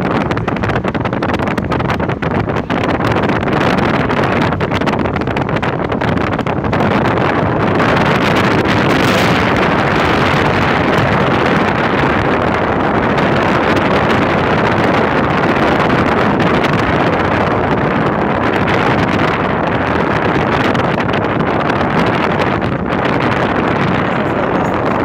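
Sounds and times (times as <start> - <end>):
wind buffeting microphone: 0.0 - 25.0
wind rushing past car: 0.0 - 25.0.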